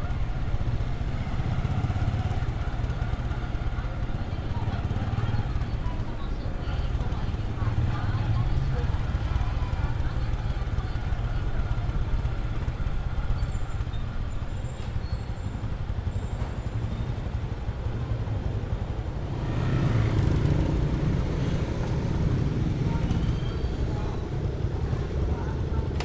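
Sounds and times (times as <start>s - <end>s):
motorcycle engine rumble: 0.0s - 26.0s.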